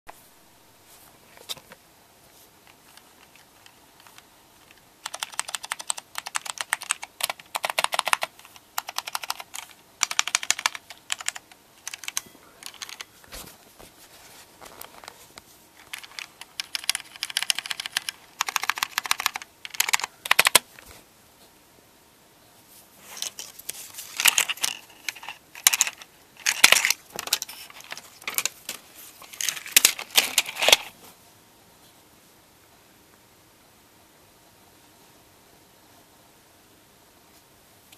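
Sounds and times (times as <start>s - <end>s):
clicky keyboard typing: 2.9s - 13.1s, 15.8s - 20.6s.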